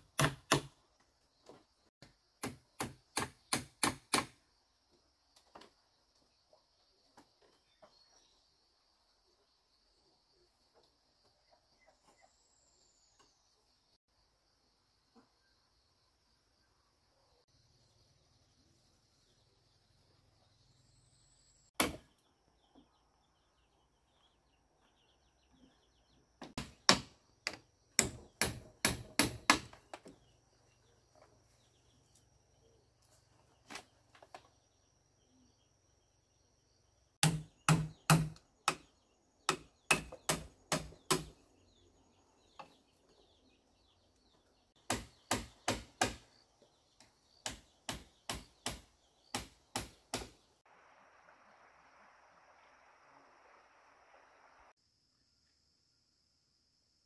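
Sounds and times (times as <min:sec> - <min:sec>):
hand tool striking bamboo: 0:00.1 - 0:00.8, 0:02.4 - 0:04.4, 0:26.6 - 0:30.0, 0:37.2 - 0:38.9, 0:39.5 - 0:41.3, 0:44.8 - 0:46.3, 0:47.4 - 0:50.4.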